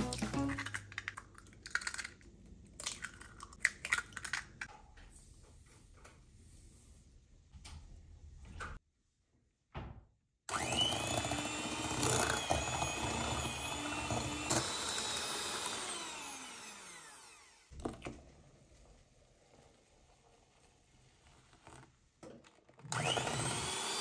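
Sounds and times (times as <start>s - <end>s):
electric hand mixer whining: 10.5s - 17.7s, 22.9s - 24.0s.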